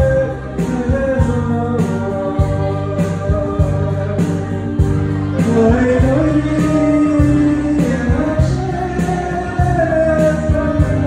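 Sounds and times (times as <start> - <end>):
electronic keyboard chords: 0.0 - 11.0
person singing: 0.0 - 11.0.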